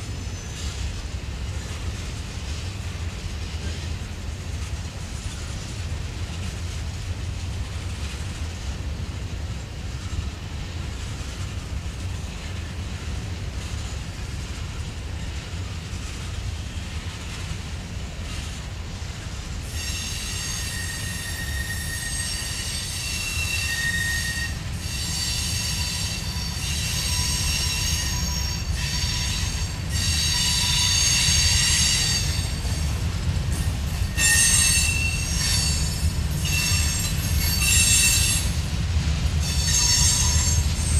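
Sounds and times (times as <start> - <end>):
train wheels squealing: 0.0 - 1.8, 5.2 - 6.6, 19.2 - 38.8, 39.4 - 40.9
freight train rumbling past: 0.0 - 40.9.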